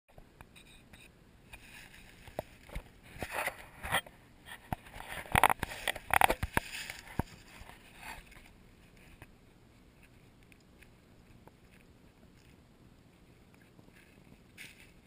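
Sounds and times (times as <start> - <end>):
crunching in dry leaves: 13.8 - 15.0.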